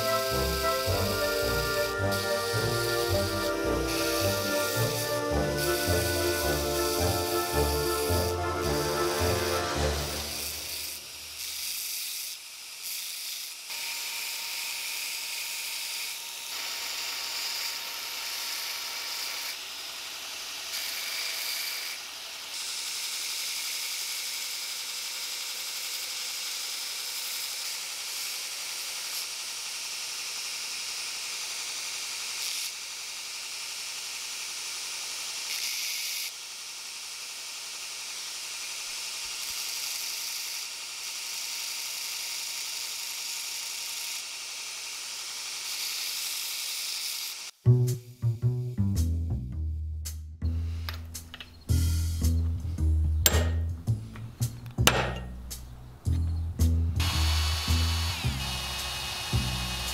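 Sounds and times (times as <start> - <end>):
belt grinder grinding metal: 0.0 - 47.6, 57.0 - 59.9.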